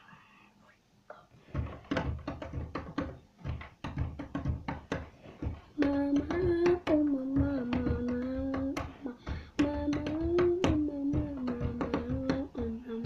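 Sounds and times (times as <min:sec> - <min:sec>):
rhythmic tapping beat: 0:01.5 - 0:13.0
child singing: 0:05.8 - 0:13.0.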